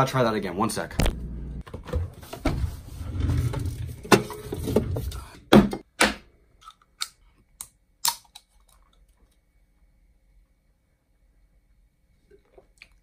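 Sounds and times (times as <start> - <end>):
drawer sliding: 1.9 - 5.3.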